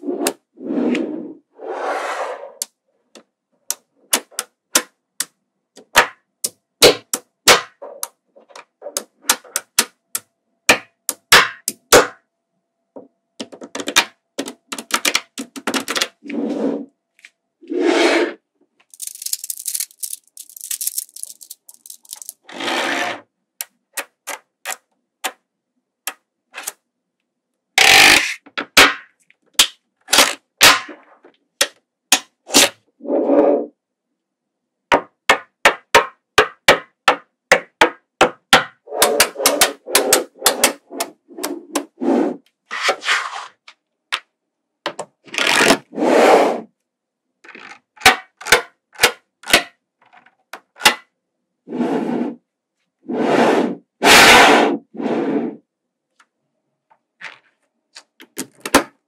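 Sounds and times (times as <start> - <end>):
rushing scraping sounds: 0.0 - 2.6, 16.2 - 16.9, 17.6 - 18.4, 38.9 - 43.6, 53.1 - 55.6
magnetic balls clicking together: 18.9 - 22.4.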